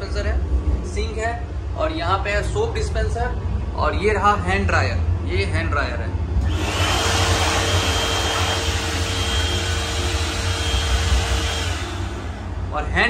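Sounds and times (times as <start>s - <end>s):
hand dryer blowing air: 6.4s - 13.0s.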